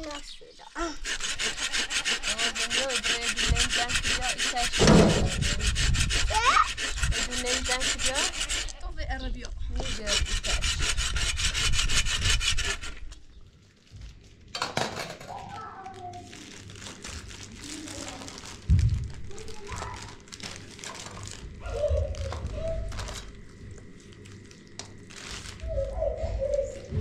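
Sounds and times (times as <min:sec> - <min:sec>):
rasping scraping strokes: 0:00.8 - 0:08.9, 0:09.7 - 0:13.2
heavy knock: 0:04.7 - 0:05.6.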